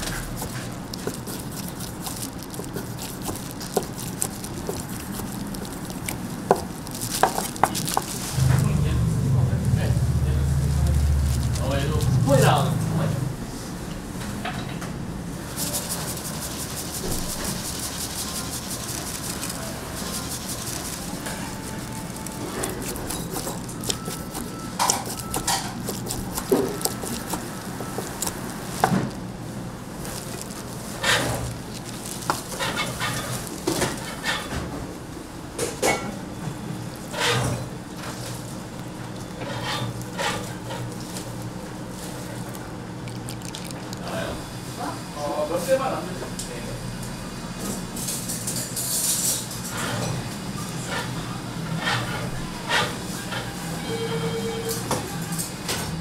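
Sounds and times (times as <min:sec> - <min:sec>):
steady low hum: 0:00.0 - 0:35.6
low continuous rumble: 0:00.0 - 0:48.6.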